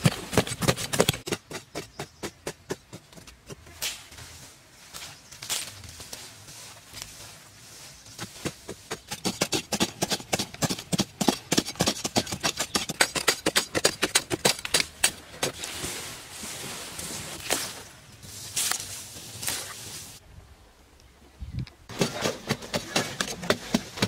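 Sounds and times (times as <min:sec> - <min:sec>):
digging tool striking dry earth: 0:00.0 - 0:04.3, 0:08.1 - 0:15.8, 0:21.9 - 0:24.0.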